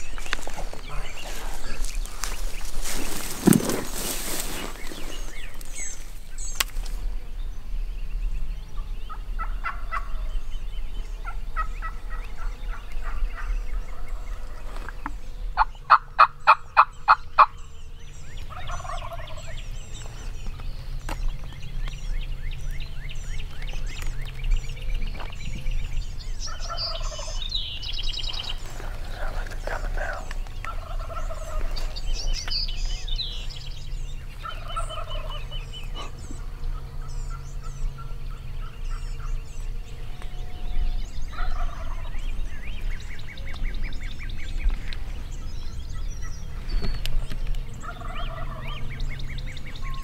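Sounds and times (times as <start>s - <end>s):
songbirds chirping: 0.0s - 50.0s
turkey yelping: 30.7s - 31.7s, 34.4s - 35.4s, 41.3s - 42.0s, 47.8s - 48.8s.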